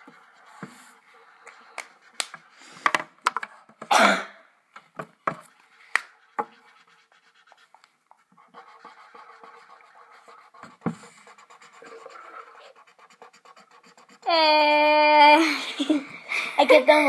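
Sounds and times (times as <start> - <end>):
markers scratching on paper: 0.0 - 2.8, 5.3 - 15.0.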